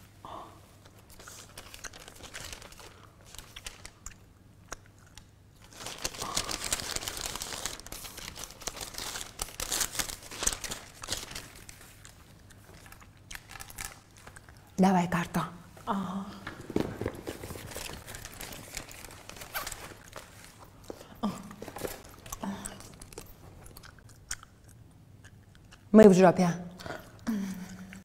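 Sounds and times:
paper receipt rustling: 0:01.1 - 0:04.0, 0:05.6 - 0:14.4, 0:16.8 - 0:20.8.

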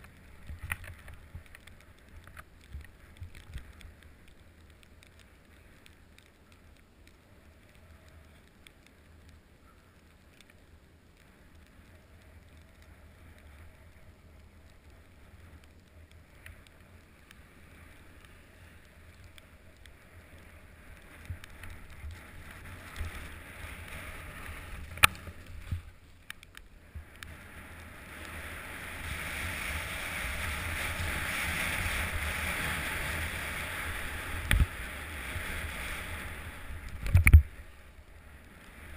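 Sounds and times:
ski sliding over snow: 0:10.1 - 0:38.9.

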